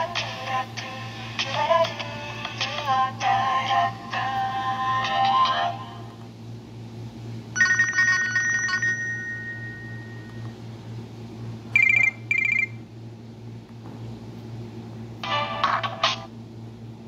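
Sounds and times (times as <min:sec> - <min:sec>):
phone ringtone jingle: 0:07.6 - 0:10.4, 0:11.8 - 0:12.8
short high beeps: 0:11.8 - 0:12.8.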